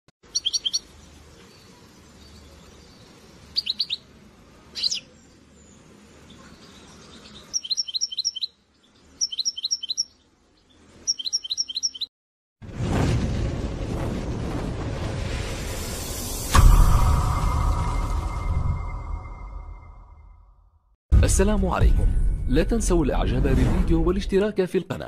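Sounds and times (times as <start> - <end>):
songbird rapid high chirps: 0.2 - 4.1, 4.7 - 12.1
single sweeping bird note: 15.7 - 20.5.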